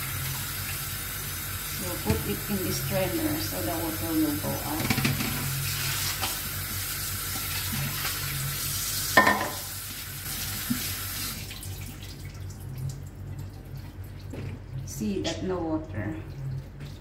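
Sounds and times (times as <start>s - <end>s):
tap running into sink: 2.0s - 2.4s, 4.7s - 5.5s, 9.2s - 9.7s
water dripping: 11.4s - 17.0s.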